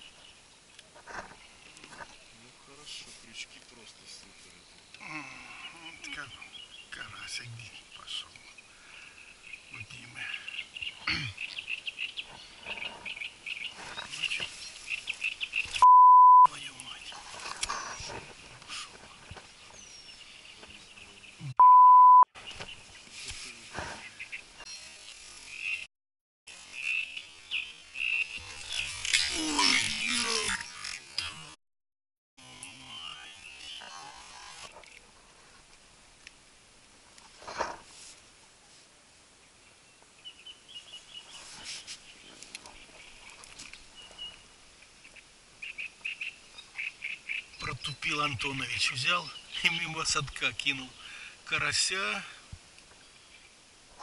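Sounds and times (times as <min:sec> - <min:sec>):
faint outdoor background: 0:00.0 - 0:25.9, 0:26.5 - 0:31.6, 0:32.4 - 0:54.0
censor bleep: 0:15.8 - 0:16.5, 0:21.5 - 0:22.3.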